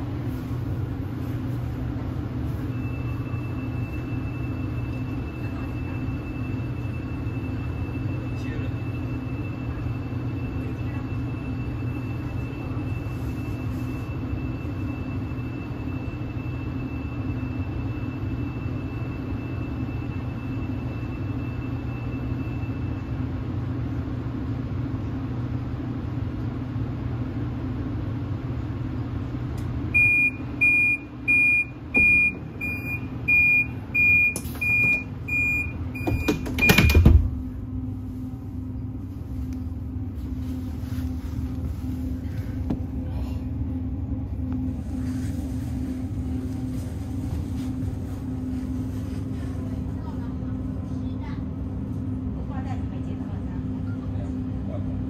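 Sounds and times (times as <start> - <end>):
train carriage hum: 0.0 - 55.0
high warning beeps: 2.6 - 23.1, 30.0 - 37.1.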